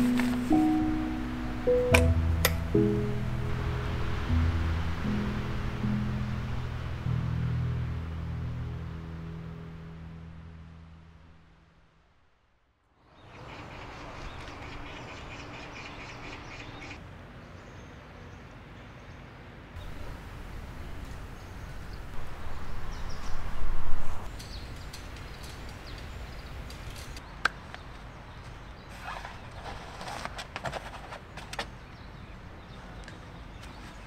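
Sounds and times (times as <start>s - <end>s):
deep rumbling noise: 1.0s - 12.0s.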